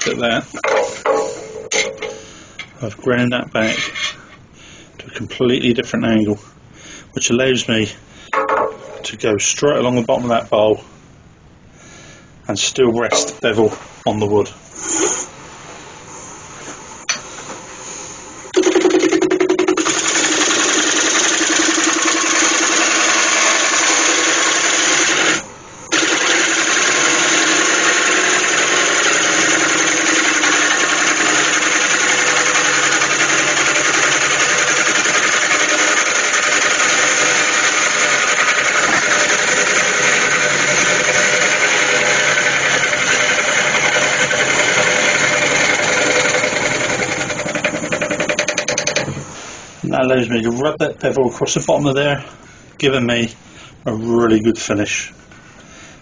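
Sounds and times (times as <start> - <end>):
gouge cutting wood on a lathe: 19.7 - 49.2.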